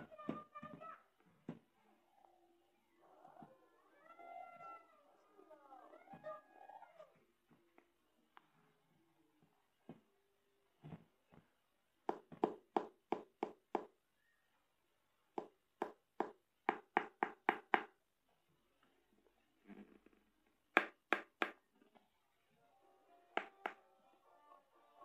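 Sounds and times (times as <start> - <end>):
knuckles knocking on hollow object: 12.1 - 13.9, 15.4 - 18.0, 20.8 - 21.6.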